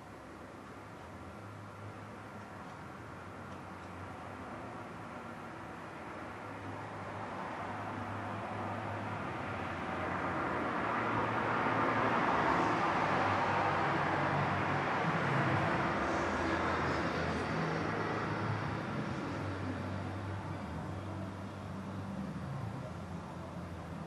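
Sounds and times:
vehicle passing by: 7.1s - 23.7s.

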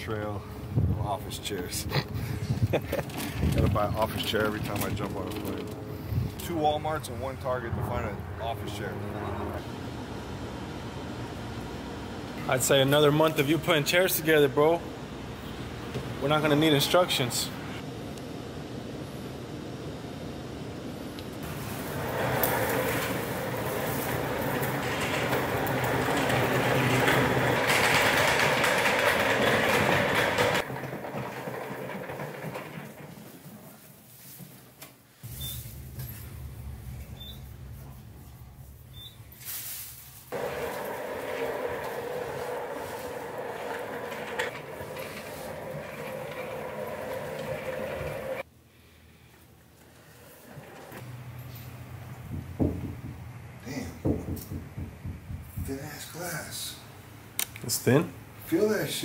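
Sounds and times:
chair casters rolling on concrete: 1.4s - 9.6s, 21.4s - 34.3s, 40.3s - 48.5s, 49.8s - 51.7s.

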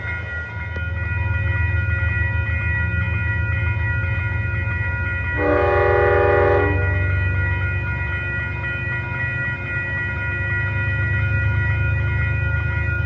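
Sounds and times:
crossing warning bell ringing: 0.0s - 13.0s
train rumble: 0.0s - 13.0s
train horn blast: 5.4s - 7.2s.

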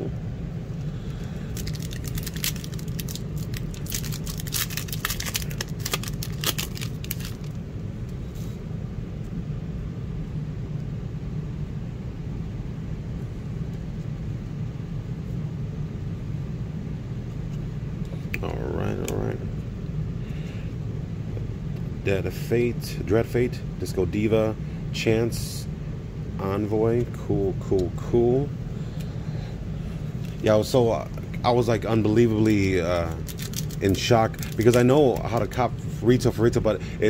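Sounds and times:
steady low hum: 0.0s - 37.0s
wrapper crinkling and tearing: 1.1s - 7.6s, 32.4s - 35.6s.

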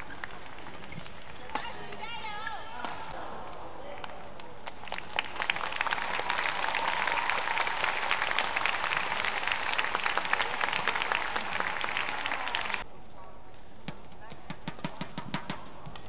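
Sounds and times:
crowd applauding: 4.7s - 12.8s.

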